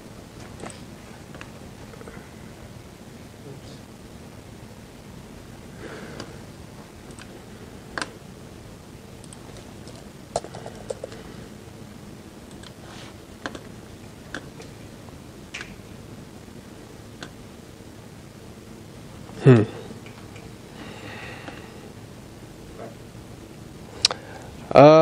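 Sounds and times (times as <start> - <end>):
background hum: 0.0 - 25.0
keyboard and mouse clicks: 7.1 - 7.3, 12.5 - 12.8, 13.4 - 13.7.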